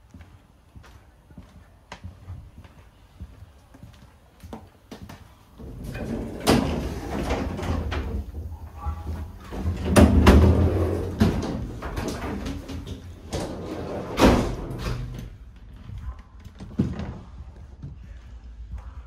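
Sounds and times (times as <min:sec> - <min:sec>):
train doors banging shut: 0:05.7 - 0:15.2.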